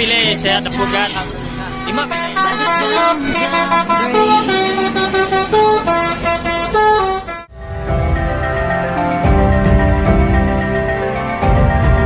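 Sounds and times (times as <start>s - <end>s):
multi-tone bus air horn tune: 0.8s - 7.5s.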